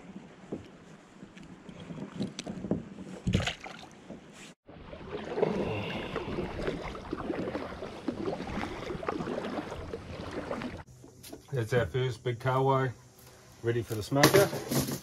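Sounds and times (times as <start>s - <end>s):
water washing along hull: 1.6s - 10.9s
paddle splashing in water: 1.6s - 11.5s.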